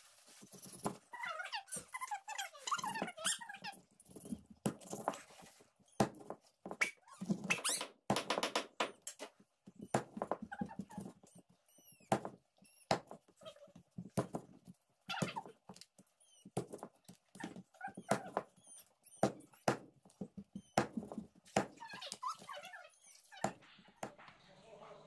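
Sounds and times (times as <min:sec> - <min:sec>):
high squeaky chirps: 0:00.6 - 0:04.4, 0:06.8 - 0:07.9, 0:17.4 - 0:19.8.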